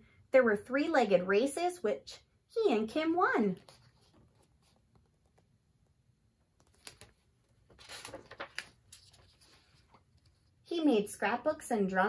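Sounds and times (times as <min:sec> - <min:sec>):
paper page rustling: 0:03.5 - 0:05.4, 0:06.6 - 0:10.6.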